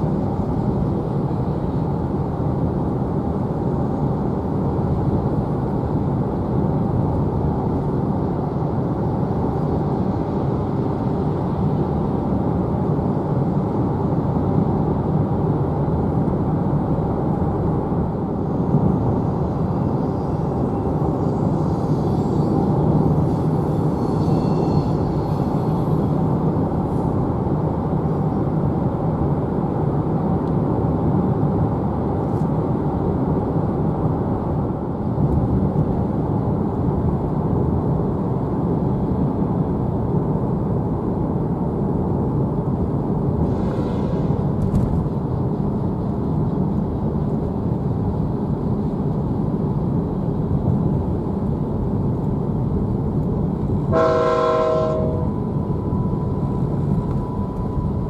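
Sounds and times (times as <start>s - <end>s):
road and rail rumble: 0.0s - 58.0s
locomotive horn: 43.5s - 44.4s, 53.9s - 55.4s.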